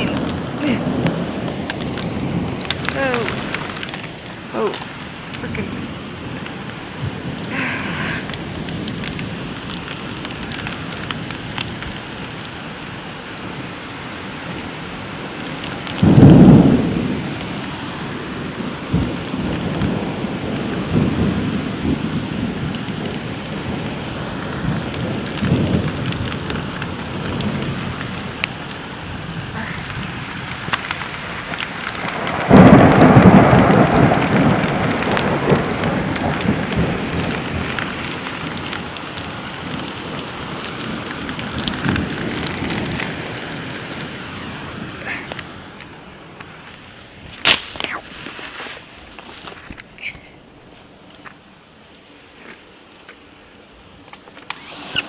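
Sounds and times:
steady rain: 0:00.0 - 0:55.0
low rumbles of thunder: 0:15.3 - 0:46.1
loud thunderclaps: 0:15.8 - 0:17.7, 0:18.4 - 0:28.6, 0:29.2 - 0:44.1.

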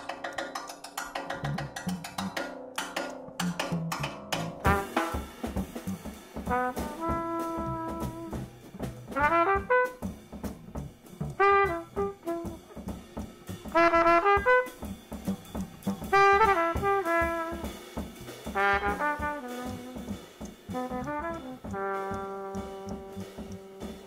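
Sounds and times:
drum kit: 0:00.0 - 0:24.0
cornet jazz solo: 0:03.2 - 0:24.0.

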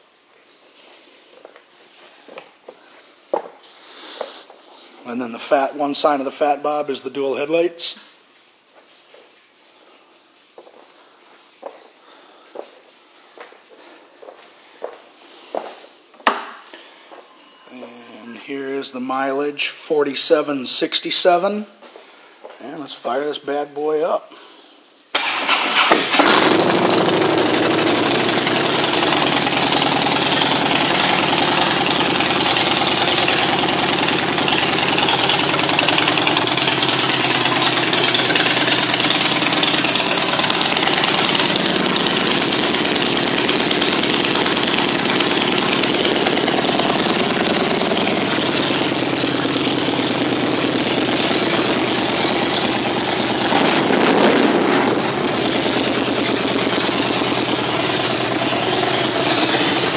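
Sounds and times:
motorcycle engine idling: 0:26.2 - 0:59.9.

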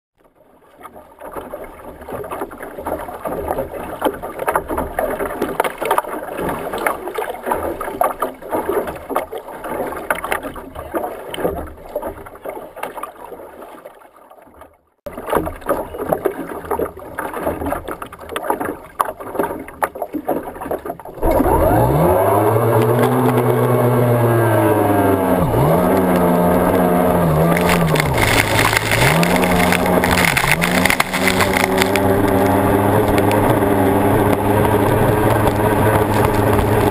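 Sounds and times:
water splashing against boat hull: 0:00.2 - 0:36.9
outboard engine revving: 0:20.5 - 0:36.9
wind on microphone: 0:26.6 - 0:36.9.

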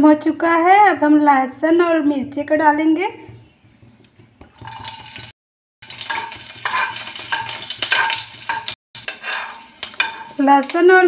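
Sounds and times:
garlic sizzling in hot oil: 0:04.6 - 0:11.0
metal spoon scraping a pan: 0:05.8 - 0:11.0.

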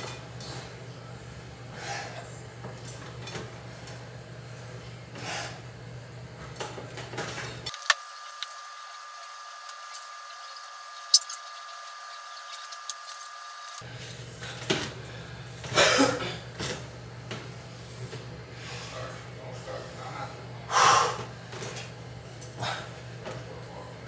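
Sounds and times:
person breathing heavily: 0:01.7 - 0:02.3, 0:20.7 - 0:21.2.

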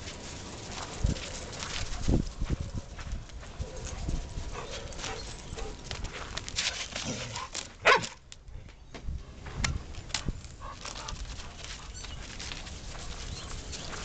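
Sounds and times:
steps crunching on icy snow: 0:04.6 - 0:08.2, 0:09.9 - 0:14.0
dog barking: 0:07.8 - 0:08.2.

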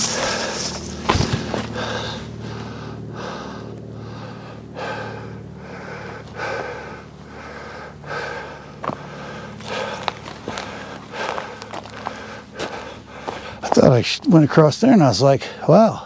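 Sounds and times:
footstep scuff on rock: 0:00.0 - 0:02.2, 0:08.8 - 0:13.9
person breathing hard: 0:00.0 - 0:13.8.

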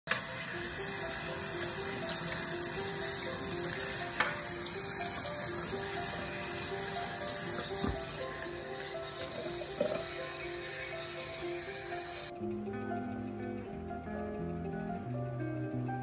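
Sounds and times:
light background music: 0:00.1 - 0:16.0
tap water splashing into sink: 0:07.6 - 0:08.2.

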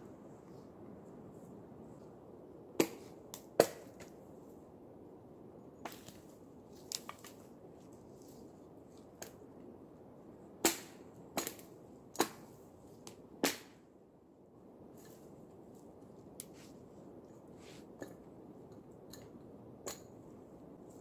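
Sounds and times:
dry branches snapping: 0:05.9 - 0:07.5, 0:10.6 - 0:13.8.

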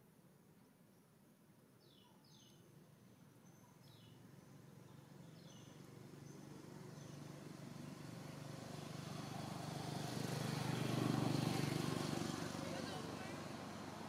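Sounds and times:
vehicle engine and road noise: 0:03.9 - 0:14.0.

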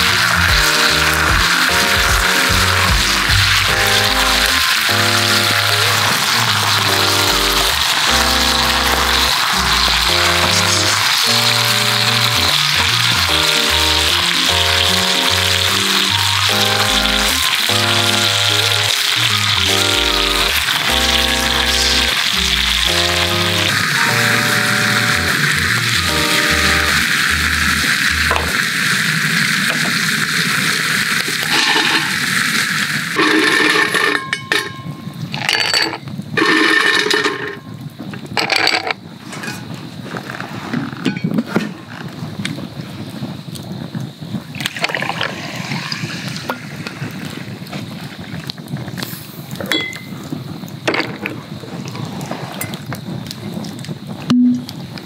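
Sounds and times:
food sizzling: 0:00.0 - 0:38.6, 0:42.2 - 0:50.8
fire crackling: 0:00.0 - 0:55.0
liquid poured over ice: 0:25.6 - 0:34.2
ice cubes clinking in glass: 0:31.4 - 0:32.3, 0:33.2 - 0:37.6.

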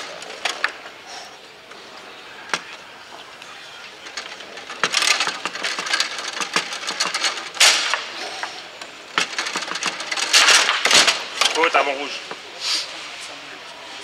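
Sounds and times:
foosball rods clacking: 0:00.0 - 0:01.0, 0:01.6 - 0:12.4
foosball ball striking figures: 0:01.7 - 0:11.6
loud crack: 0:04.0 - 0:11.8.

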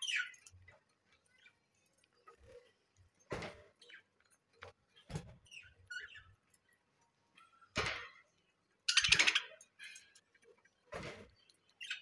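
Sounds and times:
budgerigars chirping and squeaking: 0:00.0 - 0:00.6, 0:05.0 - 0:06.4, 0:08.8 - 0:10.2, 0:11.7 - 0:12.0.

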